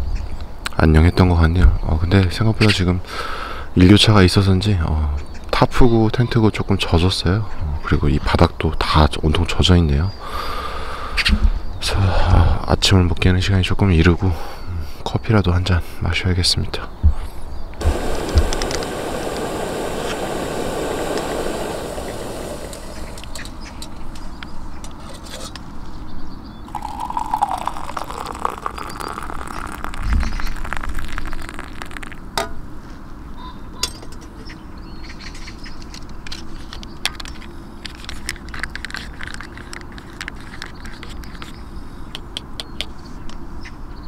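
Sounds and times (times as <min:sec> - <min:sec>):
hot water pouring into cup: 0:17.8 - 0:23.6, 0:26.7 - 0:32.5
gas stove burner hissing: 0:17.8 - 0:24.1
spoon clinking in cup: 0:26.7 - 0:30.5.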